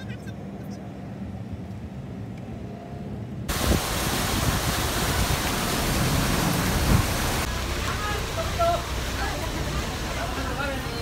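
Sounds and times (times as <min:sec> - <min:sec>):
van engine and road rumble: 0:00.0 - 0:11.0
fountain water splashing: 0:03.5 - 0:11.0.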